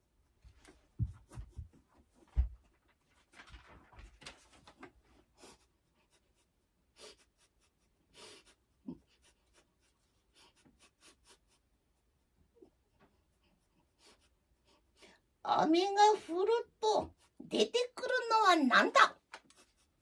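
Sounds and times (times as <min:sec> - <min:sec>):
faint rustling: 0:00.3 - 0:05.6.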